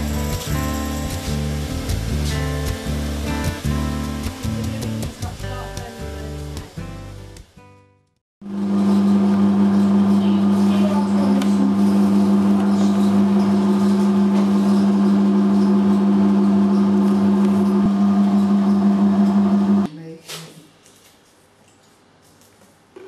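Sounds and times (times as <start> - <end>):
ice cream freezer motor hum: 0.0 - 5.8, 8.4 - 19.9.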